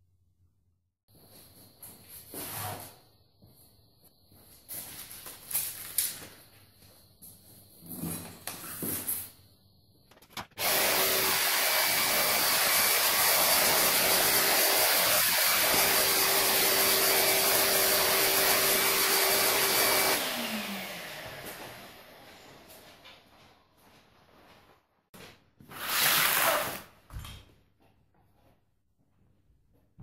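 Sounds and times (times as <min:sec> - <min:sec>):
vacuum cleaner running: 0:10.6 - 0:23.2
motor winding down whine: 0:18.6 - 0:22.5.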